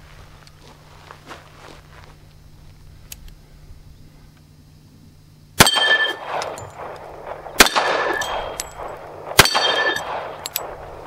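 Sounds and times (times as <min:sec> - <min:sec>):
steel target clanging: 0:05.6 - 0:06.9, 0:07.6 - 0:10.8
pistol shots: 0:05.6 - 0:11.0.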